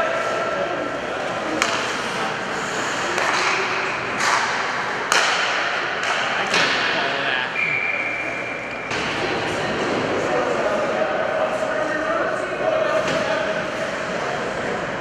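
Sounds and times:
hockey sticks striking puck: 1.2 - 7.2.

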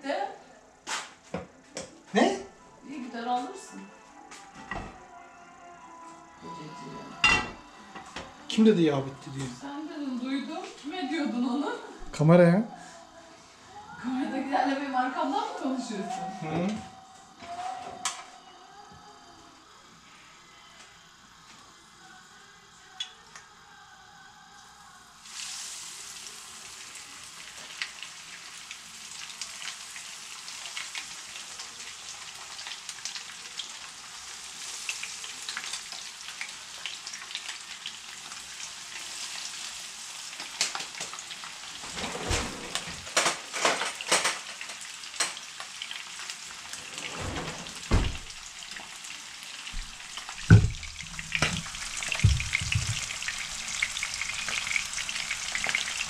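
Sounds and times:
fish sizzling in oil: 24.7 - 41.9, 43.1 - 46.8, 47.7 - 56.0
sharp knocks and clatters: 52.2 - 53.1.

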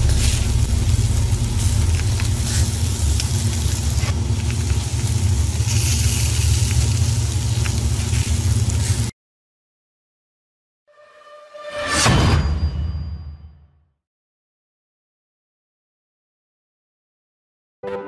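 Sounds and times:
fire burning with crackles: 0.0 - 9.1.

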